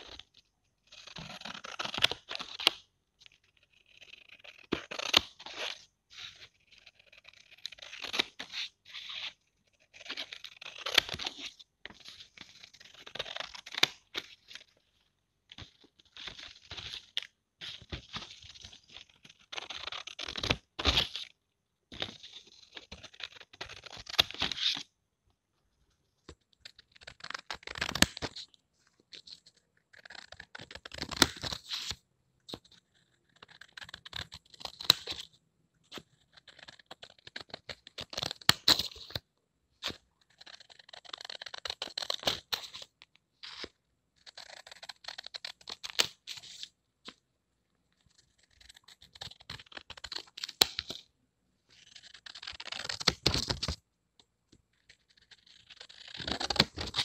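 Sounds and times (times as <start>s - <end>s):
scissors cutting paper: 1.0s - 2.8s, 54.9s - 57.0s.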